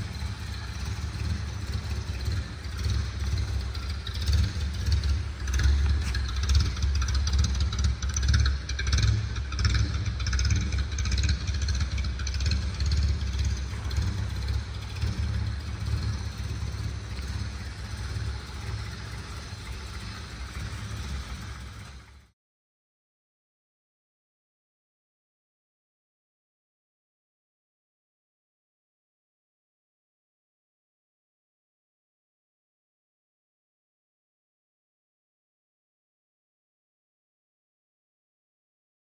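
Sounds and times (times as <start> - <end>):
car engine idling: 0.0 - 22.3.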